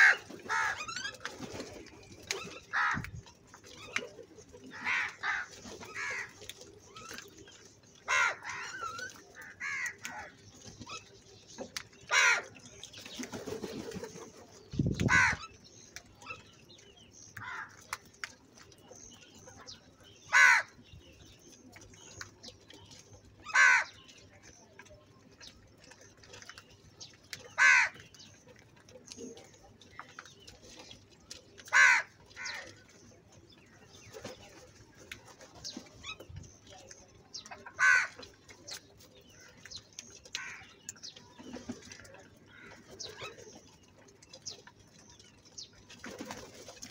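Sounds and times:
crows cawing: 8.1s - 8.7s, 9.4s - 10.3s, 15.1s - 15.4s, 17.4s - 17.8s, 20.3s - 20.7s, 23.5s - 24.0s, 27.6s - 28.0s, 31.7s - 32.7s, 37.8s - 38.2s.

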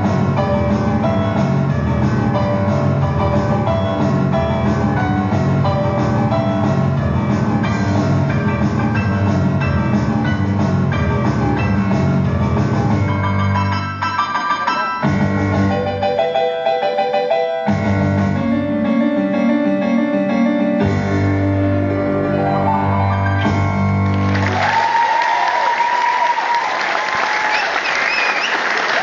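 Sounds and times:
keyboard played live: 0.0s - 25.1s
audience applause and cheering: 23.4s - 29.0s.

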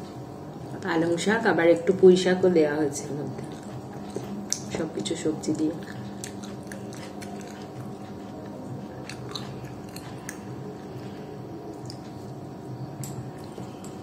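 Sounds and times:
steady low hum: 0.0s - 14.0s
wet chewing: 3.2s - 12.4s.

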